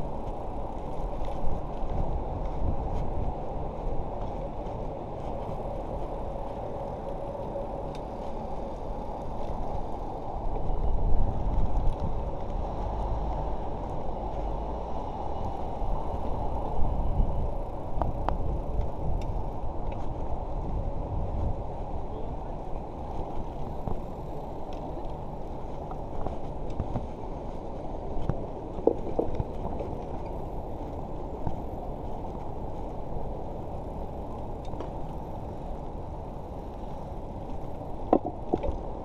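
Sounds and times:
bicycle tyres on road: 0.0 - 39.0
wind over microphone: 0.0 - 39.0.

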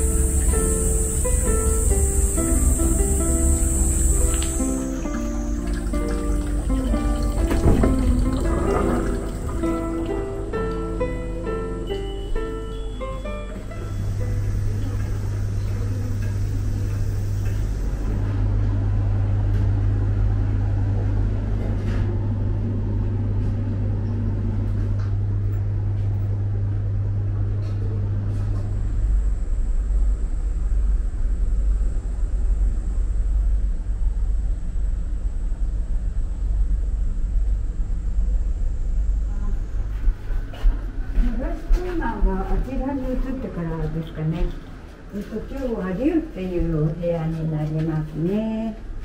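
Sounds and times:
low rumble: 0.0 - 12.5, 13.7 - 49.0
deep hum: 0.0 - 47.6.

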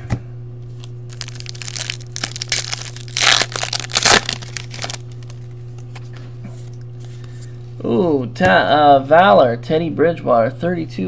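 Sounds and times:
foil wrapper crinkling and tearing: 0.8 - 5.6.

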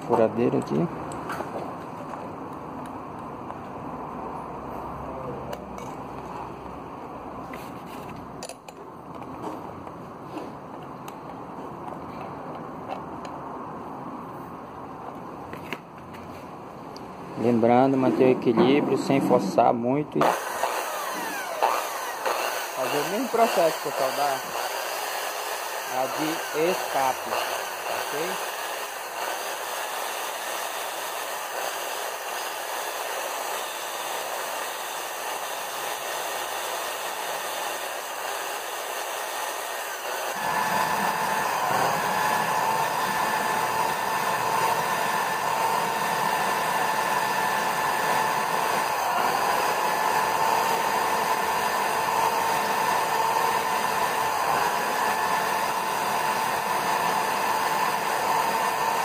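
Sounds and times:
electric drill running: 20.2 - 59.0
motor whine: 20.2 - 59.0.

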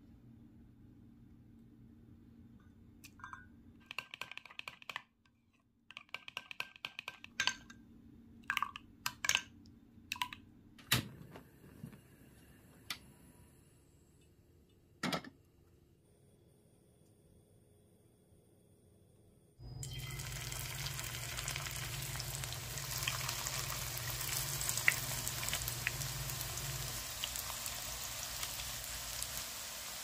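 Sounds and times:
spoon clinking glass bowl: 3.1 - 3.6.

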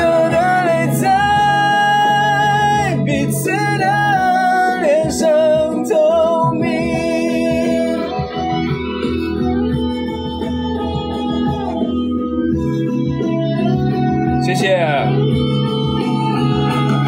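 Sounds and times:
man singing pop ballad: 0.0 - 8.9
instrumental backing music: 0.0 - 17.0.

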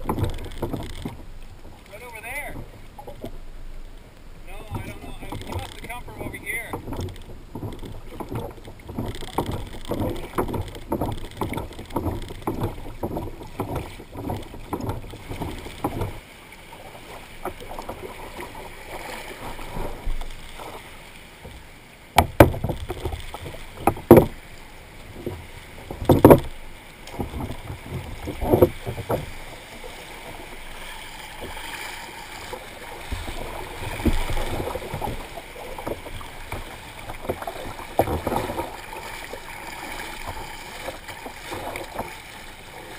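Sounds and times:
water splashing around kayak: 0.0 - 42.9
sharp loud knocks: 6.6 - 16.2, 22.2 - 24.4, 25.2 - 29.3.

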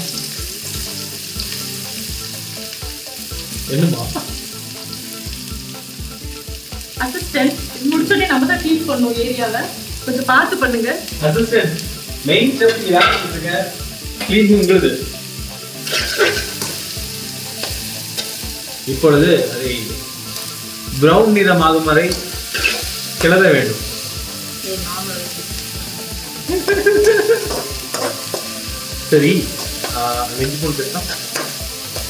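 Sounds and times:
onions sizzling in hot oil: 0.0 - 32.0
spatula scraping pan: 12.6 - 13.4, 15.8 - 16.9, 22.1 - 23.3, 27.0 - 28.7.

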